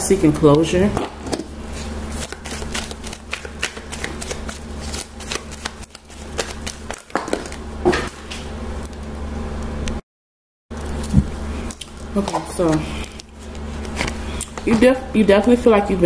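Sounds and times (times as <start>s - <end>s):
steady low hum: 0.0s - 10.0s, 10.7s - 16.0s
cards shuffled by hand: 1.4s - 7.6s.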